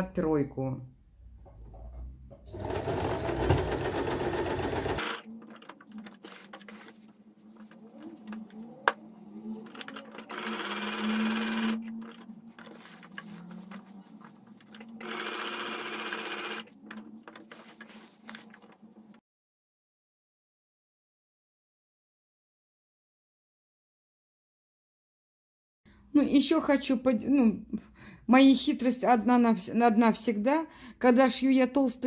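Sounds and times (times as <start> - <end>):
sewing machine stitching: 2.5 - 6.9, 7.9 - 18.8.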